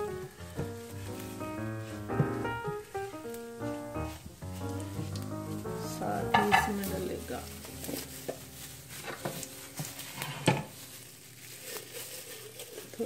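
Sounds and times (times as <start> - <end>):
seeds sizzling and popping in oil: 0.0 - 13.0
spatula stirring in a pan: 6.0 - 13.0
pan knocking on cooktop: 6.2 - 6.9.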